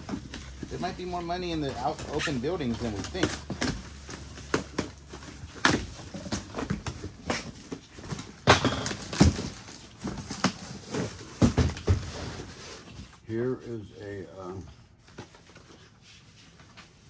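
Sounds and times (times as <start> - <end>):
cardboard boxes rustling and tearing: 0.0 - 13.2.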